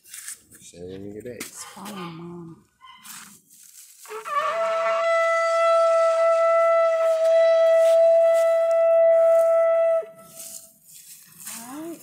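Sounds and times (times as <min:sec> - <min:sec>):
shofar long steady note: 0:04.1 - 0:10.7.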